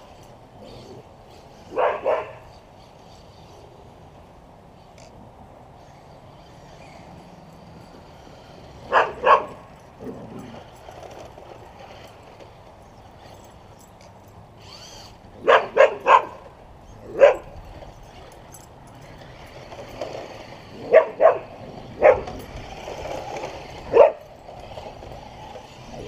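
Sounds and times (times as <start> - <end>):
dog barking: 1.7 - 2.4, 8.9 - 9.6, 15.4 - 16.4, 17.1 - 17.4, 20.9 - 22.3, 23.9 - 24.2.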